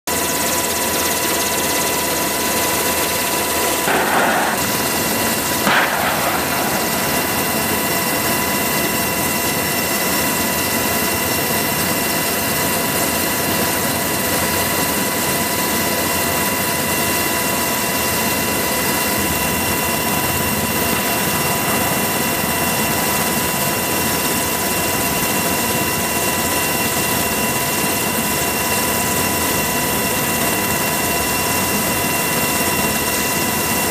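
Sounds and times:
helicopter turbine and rotor drone: 0.1s - 33.9s
brief loud bursts: 3.9s - 8.5s
high whining tones: 3.9s - 10.4s.

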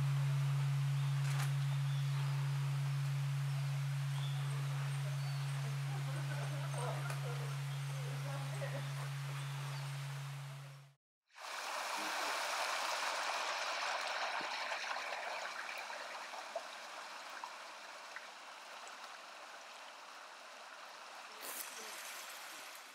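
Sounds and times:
stream pouring over weir: 11.3s - 22.9s.

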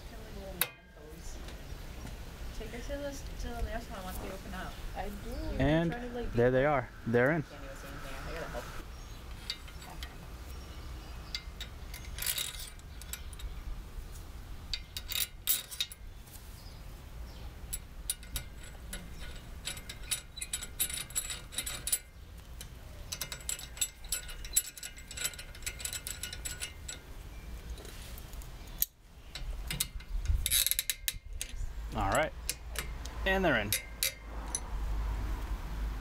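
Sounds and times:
metal tools clinking: 9.3s - 13.6s, 14.7s - 16.1s, 17.6s - 34.7s
hand ratchet clicking: 17.7s - 27.0s, 28.8s - 31.6s, 32.4s - 34.6s.

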